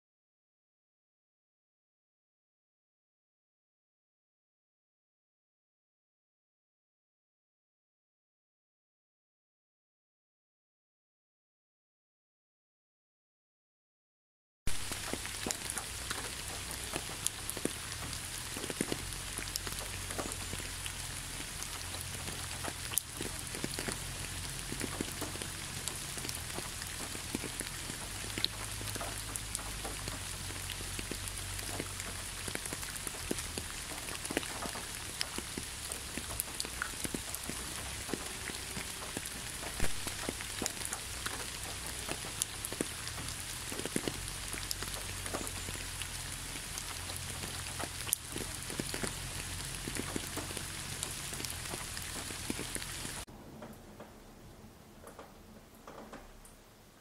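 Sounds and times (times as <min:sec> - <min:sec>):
raindrop hits: 0:14.7 - 0:56.7
steady rain: 0:14.7 - 0:57.0.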